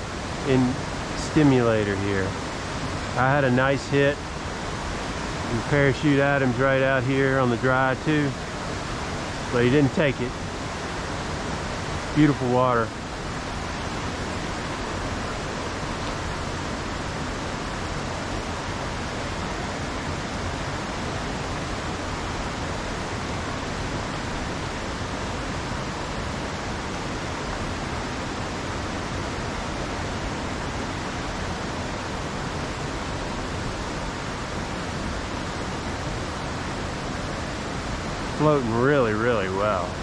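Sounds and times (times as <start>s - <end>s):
creek rushing over rocks: 0.0s - 40.0s.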